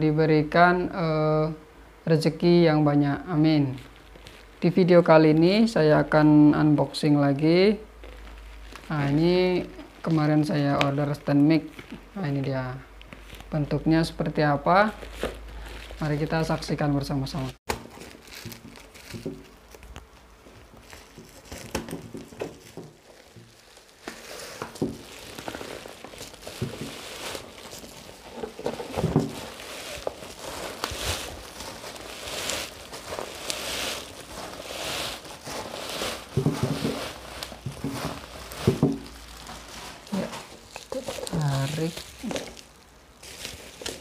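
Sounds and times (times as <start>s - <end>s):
plastic packaging crinkling: 3.6s - 4.6s, 8.0s - 12.0s, 14.8s - 44.0s.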